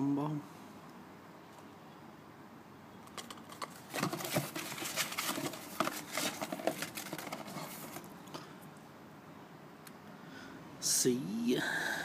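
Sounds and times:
cardboard and paper rustling: 0:03.2 - 0:08.1.

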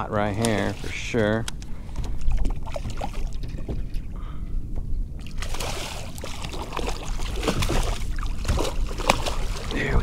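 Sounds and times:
fish splashing at water surface: 0:05.2 - 0:09.9.

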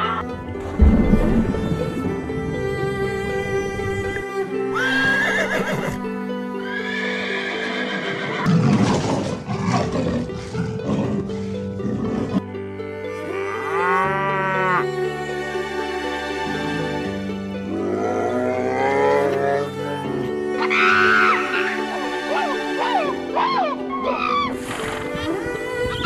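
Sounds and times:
background music: 0:00.0 - 0:26.0
animal cries: 0:20.6 - 0:25.3.

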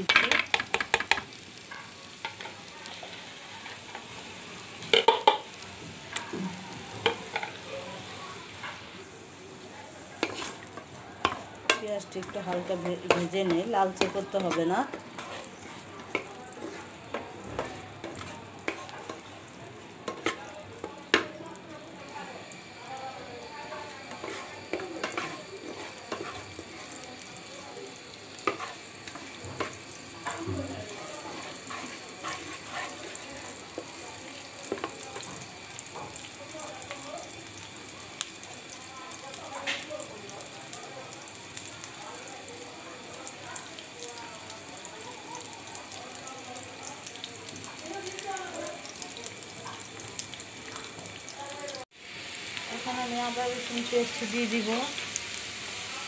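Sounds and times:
spatula scraping and knocking pan: 0:00.0 - 0:04.1, 0:04.9 - 0:06.2, 0:06.8 - 0:07.6, 0:10.2 - 0:19.3, 0:20.0 - 0:21.4, 0:23.6 - 0:26.7, 0:28.4 - 0:34.0, 0:34.7 - 0:35.3
onions sizzling in oil: 0:00.0 - 0:56.0.

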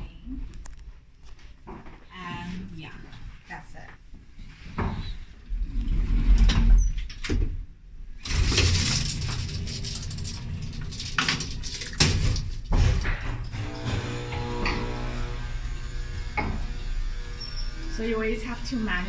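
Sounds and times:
metal scissor gate rattling: 0:08.3 - 0:13.1.

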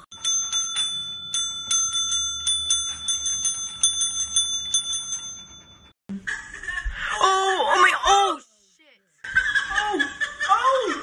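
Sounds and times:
service bell dinging: 0:00.1 - 0:06.0.

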